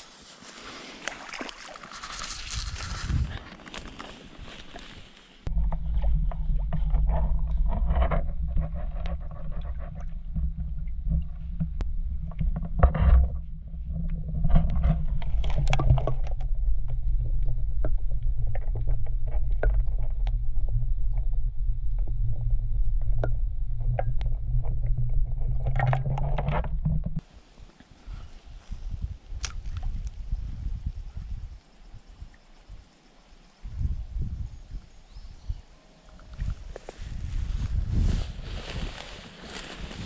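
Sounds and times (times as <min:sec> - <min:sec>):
underwater river water rumble: 0:05.5 - 0:27.3.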